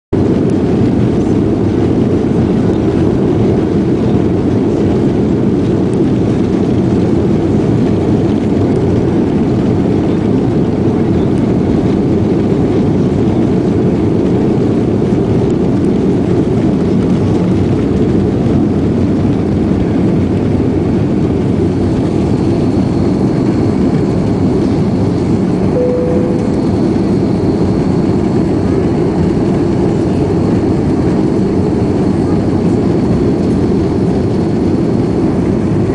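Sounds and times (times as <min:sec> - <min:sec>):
jet engines roaring: 0:00.2 - 0:35.9
faint high whine: 0:25.7 - 0:28.3.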